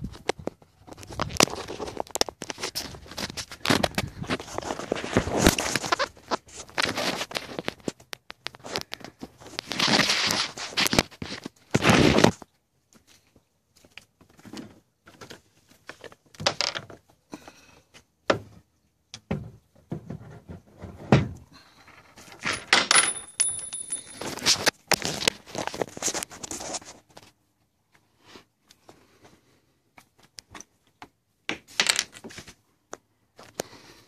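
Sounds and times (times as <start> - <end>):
handling knocks and clicks: 22.3 - 25.8.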